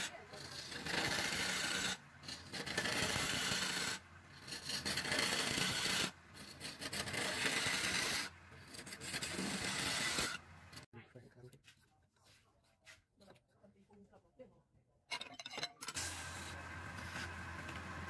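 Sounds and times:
turning tool scraping wood: 0.0s - 10.9s, 15.9s - 18.0s.

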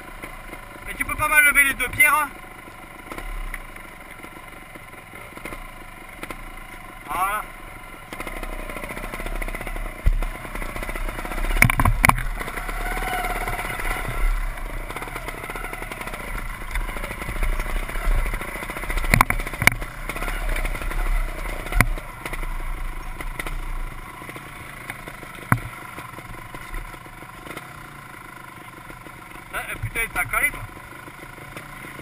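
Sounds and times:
motorcycle engine running: 0.0s - 32.0s
motorcycle knocking on stones: 8.1s - 27.8s.

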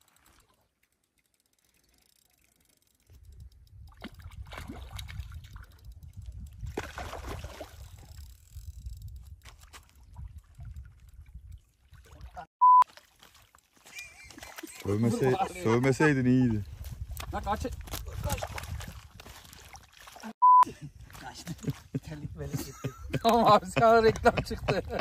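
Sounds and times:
water splashing and sloshing: 0.0s - 8.5s, 9.3s - 20.4s
wind rumbling on microphone: 3.1s - 12.5s, 15.4s - 19.8s, 20.9s - 25.0s
censor bleep: 12.6s - 12.8s, 20.4s - 20.7s.

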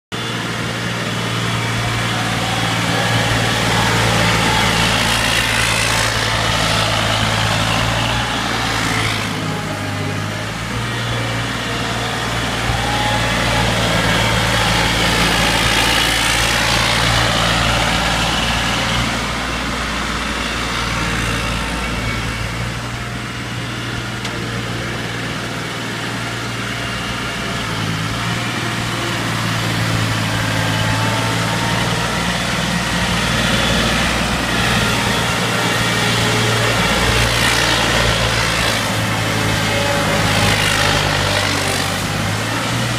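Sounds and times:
skid-steer loader engine running: 0.1s - 42.9s.

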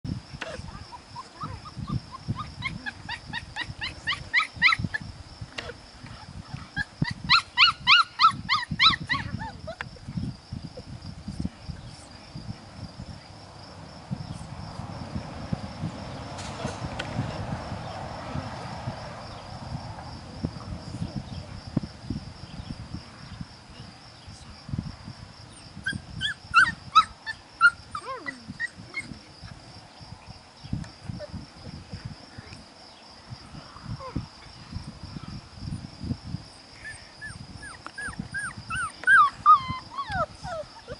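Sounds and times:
crickets chirping: 0.0s - 40.9s
puppies yipping: 1.2s - 5.0s, 6.5s - 9.8s, 25.8s - 29.2s, 36.8s - 40.9s.

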